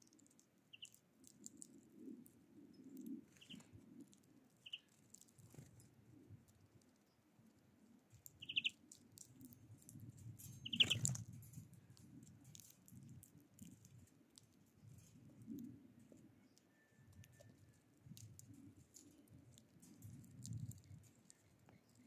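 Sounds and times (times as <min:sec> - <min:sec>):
birds pecking seeds on wood: 0:00.0 - 0:22.0
songbird chirps: 0:00.2 - 0:05.7, 0:08.1 - 0:09.3, 0:10.6 - 0:11.2, 0:16.2 - 0:17.9, 0:20.7 - 0:22.0
wings fluttering: 0:03.1 - 0:05.9, 0:08.4 - 0:09.3, 0:10.5 - 0:11.3.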